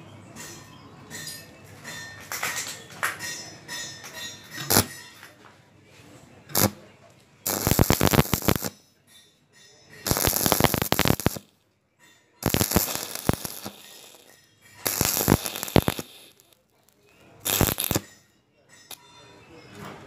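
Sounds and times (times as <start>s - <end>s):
welding arc crackling: 4.6s - 5.0s, 6.5s - 6.8s, 7.5s - 8.8s, 10.1s - 11.5s, 12.4s - 16.5s, 17.4s - 18.2s.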